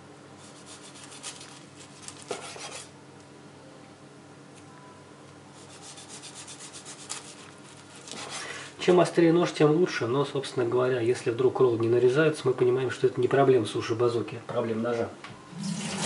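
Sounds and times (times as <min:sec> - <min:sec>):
knife sawing through sushi roll: 0:00.4 - 0:02.9, 0:05.6 - 0:08.6.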